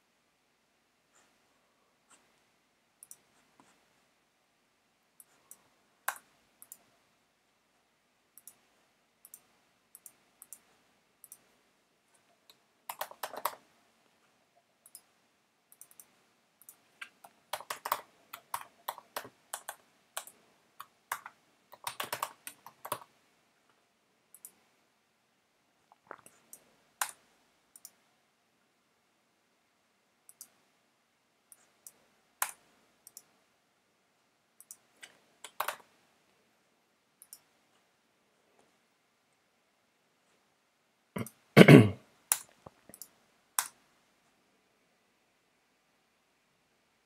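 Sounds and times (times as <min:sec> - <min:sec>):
typing on computer keyboard: 0:12.5 - 0:13.7, 0:15.8 - 0:23.1, 0:34.6 - 0:35.9.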